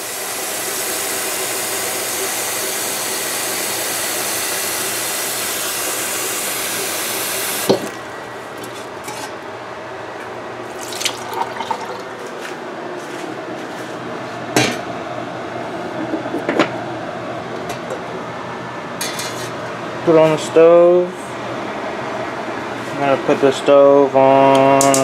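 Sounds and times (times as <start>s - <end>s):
tap water running into saucepan: 10.8s - 12.3s.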